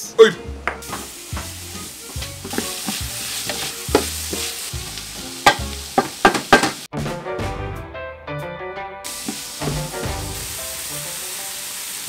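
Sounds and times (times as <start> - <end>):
food sizzling: 0.4 - 6.9, 9.0 - 12.0.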